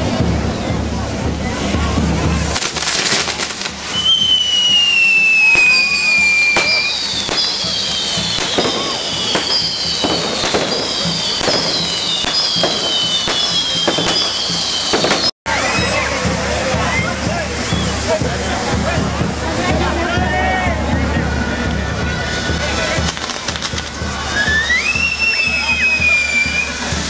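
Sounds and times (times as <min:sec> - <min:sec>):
spark fountains hissing: 0:00.4 - 0:27.0
firework cracks: 0:01.6 - 0:15.4, 0:22.5 - 0:27.0
falling firework whistles: 0:02.6 - 0:16.1, 0:17.0 - 0:18.1, 0:23.0 - 0:27.0.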